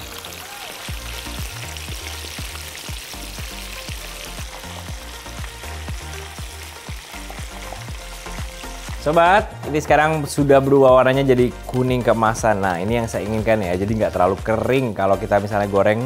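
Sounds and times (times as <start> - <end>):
chicken deep-frying in oil: 0.0 - 9.5.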